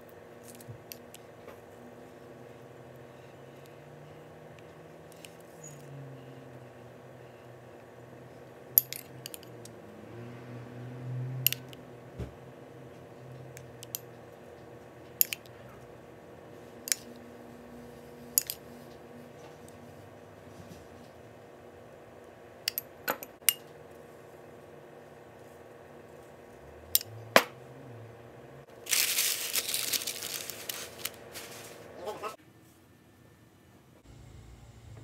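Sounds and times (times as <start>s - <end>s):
metal spoon clinking: 8.8s - 9.5s, 15.2s - 15.5s, 18.4s - 18.6s, 22.7s - 23.6s.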